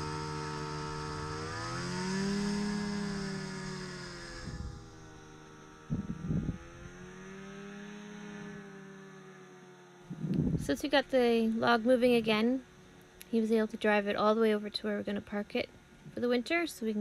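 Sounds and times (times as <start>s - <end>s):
snowmobile engine revving: 0.0s - 12.6s.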